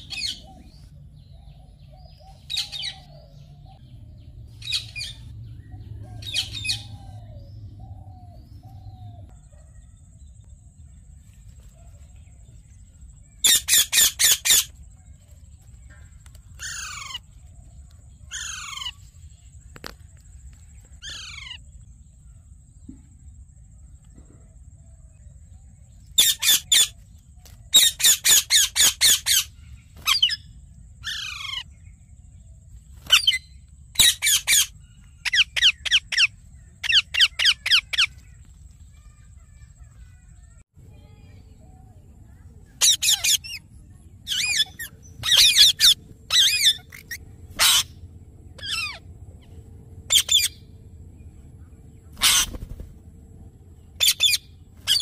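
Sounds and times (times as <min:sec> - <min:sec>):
parakeets screeching: 0:13.4 - 0:14.8, 0:16.6 - 0:17.4, 0:18.3 - 0:19.2, 0:21.0 - 0:21.6, 0:26.1 - 0:26.9, 0:27.7 - 0:31.7, 0:33.0 - 0:38.4, 0:42.8 - 0:50.8, 0:52.0 - 0:53.0, 0:53.9 - 0:55.0.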